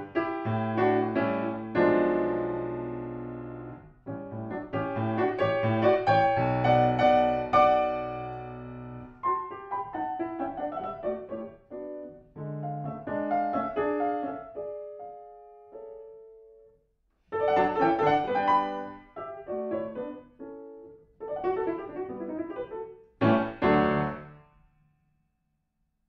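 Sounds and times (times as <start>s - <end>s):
grand piano playing: 0.0s - 16.7s, 17.4s - 24.4s.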